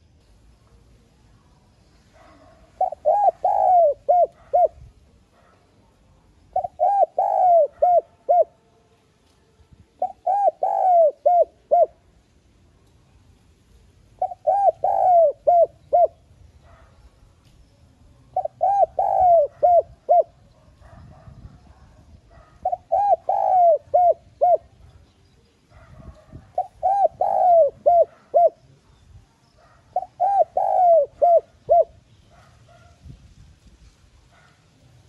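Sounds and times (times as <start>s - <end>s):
dove cooing: 2.2s - 5.6s, 6.5s - 8.6s, 10.0s - 12.0s, 14.2s - 16.9s, 18.3s - 24.8s, 25.7s - 29.0s, 29.6s - 32.9s.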